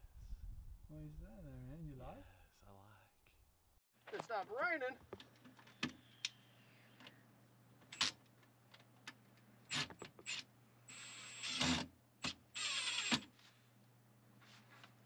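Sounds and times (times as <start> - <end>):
handheld power tool running: 9.7 - 13.3.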